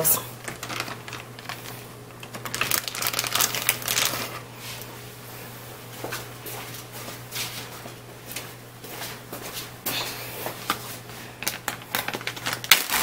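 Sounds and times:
plastic bag crinkling: 0:00.3 - 0:04.5, 0:11.4 - 0:13.0.

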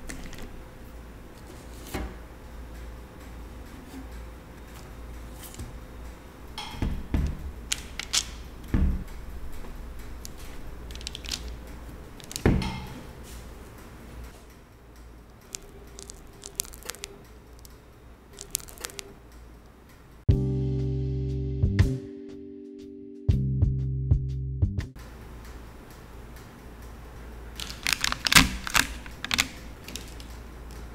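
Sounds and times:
paper rustling: 0:10.2 - 0:13.5, 0:15.5 - 0:17.7, 0:18.4 - 0:19.2, 0:27.6 - 0:30.4.

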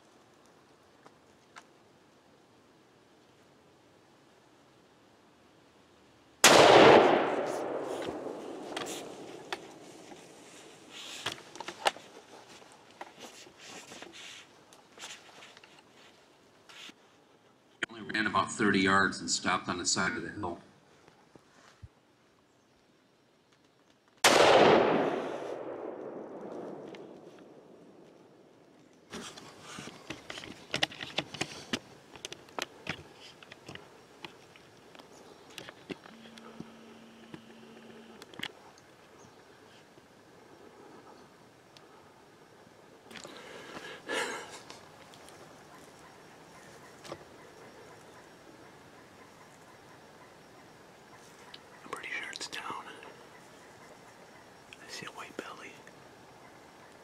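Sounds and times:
rifle shot: 0:06.4 - 0:09.8, 0:24.2 - 0:28.0
rustling in dry leaves: 0:07.5 - 0:17.2.

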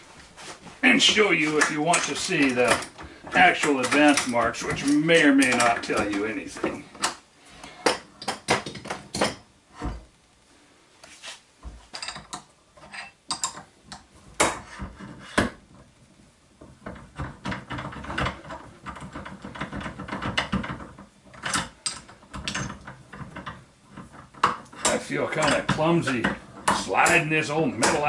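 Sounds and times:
metal rattling and scraping: 0:00.8 - 0:06.9
metal clanks and clicks: 0:01.4 - 0:07.2, 0:16.8 - 0:28.0.

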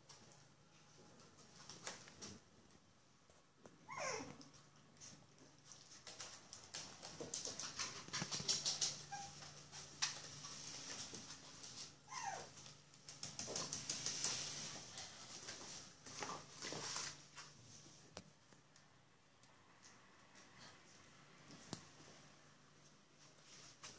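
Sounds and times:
puppies moving with soft clicks: 0:00.1 - 0:17.5
puppy whimper: 0:03.8 - 0:04.4, 0:09.0 - 0:09.5, 0:12.1 - 0:12.6.

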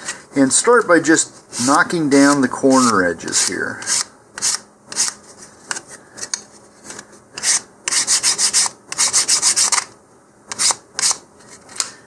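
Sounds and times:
sandpaper sanding wood: 0:07.4 - 0:09.8.

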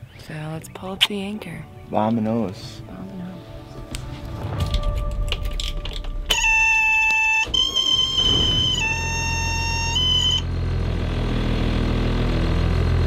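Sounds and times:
high electronic tone: 0:06.0 - 0:10.5
diesel engine starting and idling: 0:06.3 - 0:13.0.

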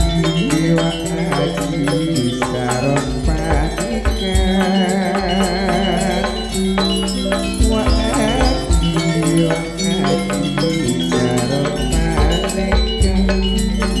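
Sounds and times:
deep low drum beats: 0:00.0 - 0:14.0
metal percussion struck: 0:00.0 - 0:14.0
sustained tones: 0:00.0 - 0:14.0
wavering melodic line: 0:00.0 - 0:14.0.

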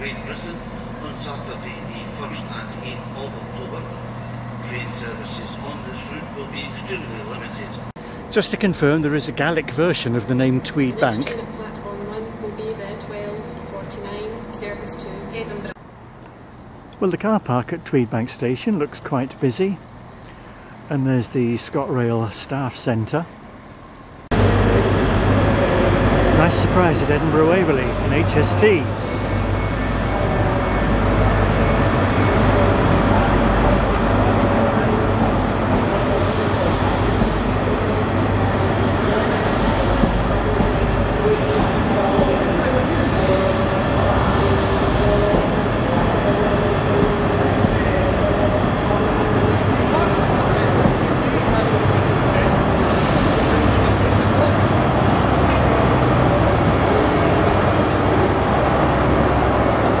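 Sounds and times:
diesel locomotive running: 0:00.0 - 1:00.0
train coaches rolling by: 0:00.0 - 1:00.0.

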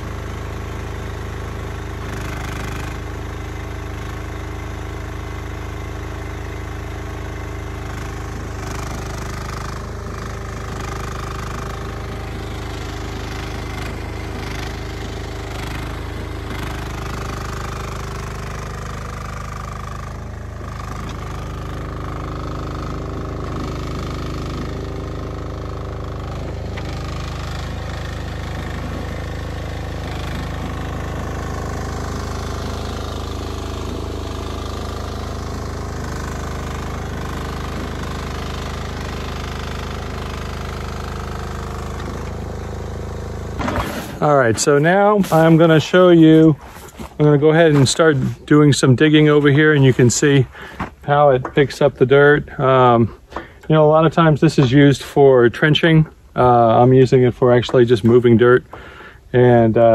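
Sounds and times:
excavator engine running: 0:00.0 - 0:59.9
high whine: 0:43.5 - 0:58.7.

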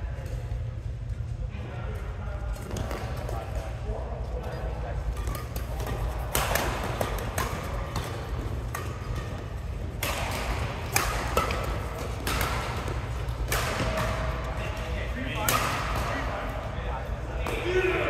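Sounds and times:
steady low hum: 0:00.0 - 0:18.0
rackets hitting shuttlecock: 0:04.4 - 0:16.6.

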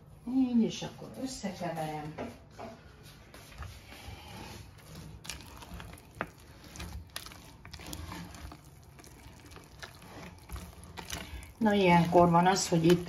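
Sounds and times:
spoon stirring wet filling: 0:03.3 - 0:13.0
spoon clicks and scrapes: 0:04.7 - 0:13.0.

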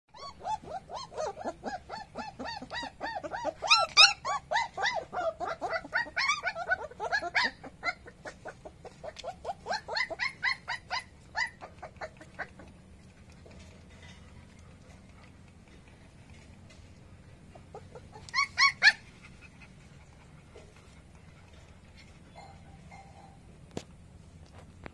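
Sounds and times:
puppy squealing and yelping: 0:00.1 - 0:13.3, 0:17.5 - 0:20.6, 0:22.0 - 0:23.4.

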